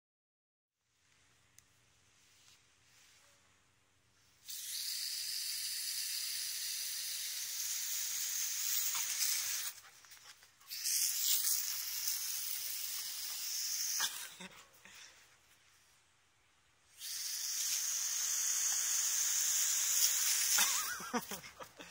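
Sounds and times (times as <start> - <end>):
garden hose spraying water: 4.4 - 14.5, 16.9 - 21.9.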